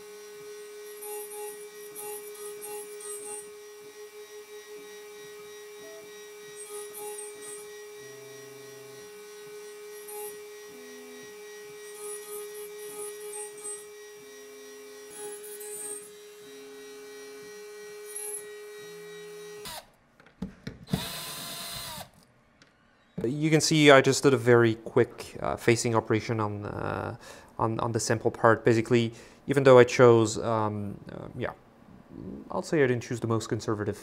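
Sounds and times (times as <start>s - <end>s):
cordless drill spinning: 0.0s - 19.9s, 20.9s - 22.2s
high-pitched metal cutting bursts: 0.0s - 19.9s
router spindle whining: 0.0s - 19.9s, 20.9s - 22.1s.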